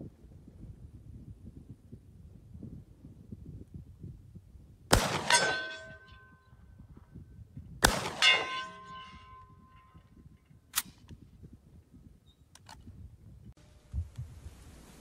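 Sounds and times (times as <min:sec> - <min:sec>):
shotgun shots: 0:04.9 - 0:06.2, 0:07.8 - 0:09.4
bullet clanging on steel plate: 0:05.1 - 0:06.5, 0:08.0 - 0:10.2
sharp metallic click: 0:10.7 - 0:11.2.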